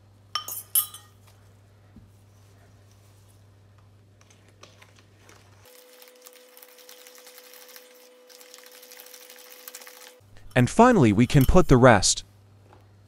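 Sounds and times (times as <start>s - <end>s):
whisk tapping metal bowl: 8.7s - 11.8s.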